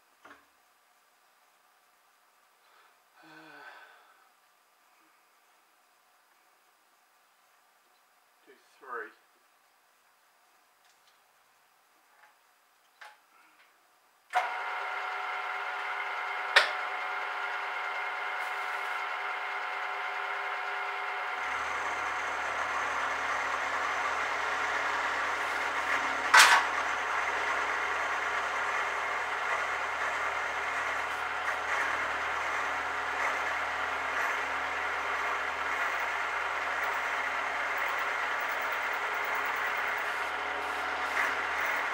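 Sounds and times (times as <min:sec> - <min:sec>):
lower hum of cutting: 0:14.4 - 0:41.9
milling machine motor whining: 0:14.4 - 0:41.9.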